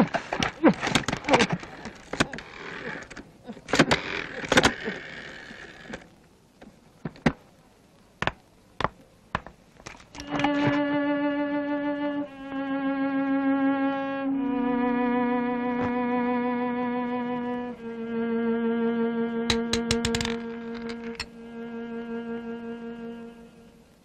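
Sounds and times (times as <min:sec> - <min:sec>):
sharp cartoon clicks: 0:19.5 - 0:21.3.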